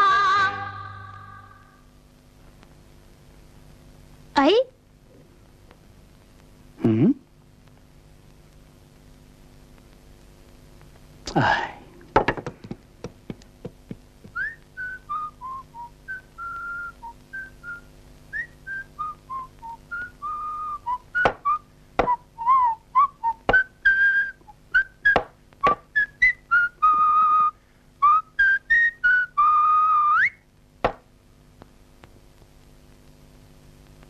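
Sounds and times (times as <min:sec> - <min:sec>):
hammer knocking on wood: 0:12.2 - 0:14.0
person whistling a tune: 0:14.4 - 0:17.8, 0:26.0 - 0:30.4.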